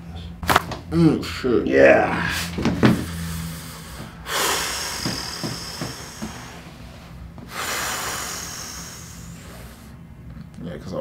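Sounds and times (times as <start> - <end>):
man breathing: 2.2 - 10.2.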